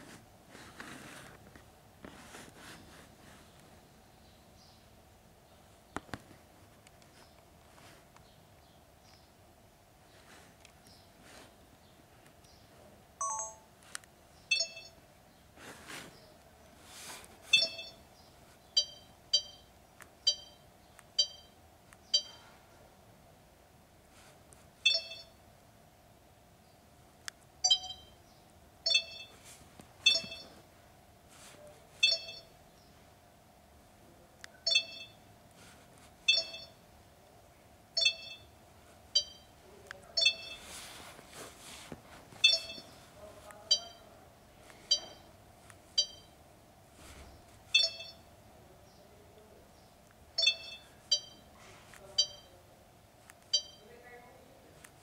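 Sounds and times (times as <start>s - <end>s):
short electronic beeps: 13.2s - 13.7s, 14.5s - 15.0s, 17.5s - 18.0s, 18.8s - 19.7s, 20.3s - 20.6s, 21.2s - 21.5s, 22.1s - 22.4s, 24.8s - 25.4s, 27.6s - 28.2s, 28.9s - 29.4s, 30.0s - 30.6s, 32.0s - 32.5s, 34.6s - 35.2s, 36.3s - 36.8s, 38.0s - 38.5s, 39.2s - 39.5s, 40.2s - 40.7s, 42.4s - 42.9s, 43.7s - 44.1s, 44.9s - 45.3s, 46.0s - 46.3s, 47.7s - 48.3s, 50.4s - 51.5s, 52.2s - 52.5s, 53.5s - 53.8s.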